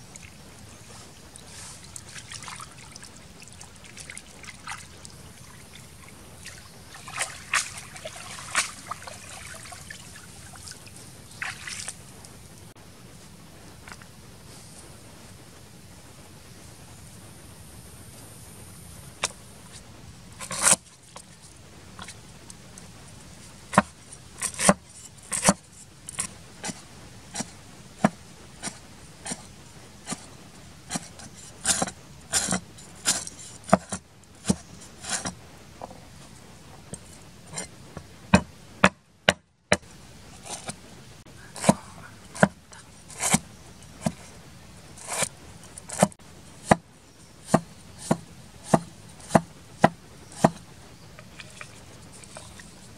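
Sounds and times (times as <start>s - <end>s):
cleaver chopping on wooden board: 23.7s - 25.6s, 31.7s - 35.4s, 42.4s - 42.6s, 47.4s - 50.6s.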